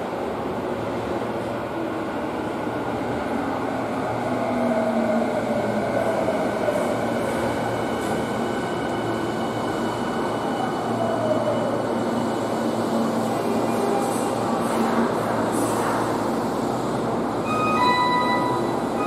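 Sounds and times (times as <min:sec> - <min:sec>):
train braking: 0:17.3 - 0:19.0.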